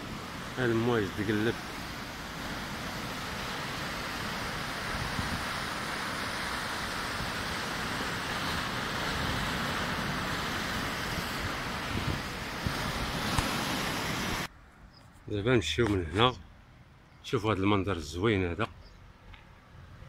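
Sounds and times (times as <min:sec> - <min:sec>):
rough sea surf on rocks: 0:00.0 - 0:14.5.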